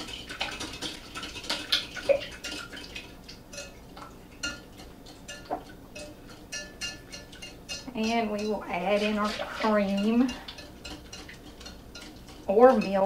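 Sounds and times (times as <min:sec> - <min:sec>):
whisk clicking against glass: 0:04.4 - 0:08.6.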